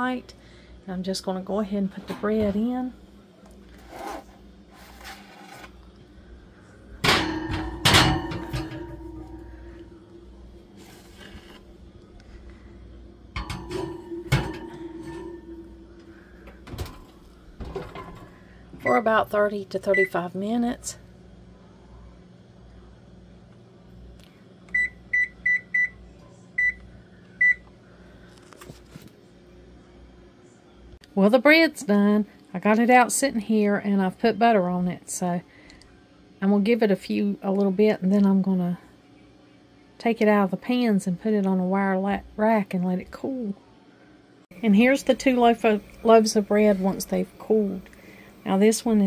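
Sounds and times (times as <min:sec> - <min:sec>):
metal pans clanking on oven rack: 0:07.0 - 0:09.8, 0:13.4 - 0:19.0.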